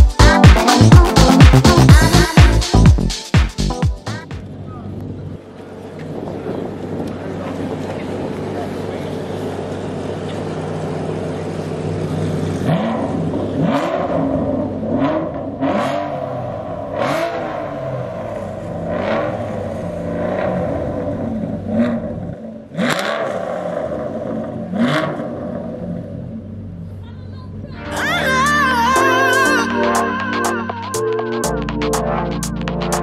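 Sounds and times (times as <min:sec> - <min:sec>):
sports car engine revving: 0:05.7 - 0:27.0.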